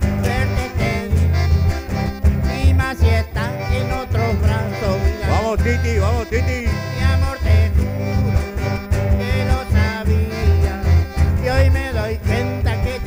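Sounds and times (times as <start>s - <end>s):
live band playing: 0.0s - 13.0s
sliding lead melody: 0.0s - 13.0s
steady bass beat: 4.4s - 7.8s.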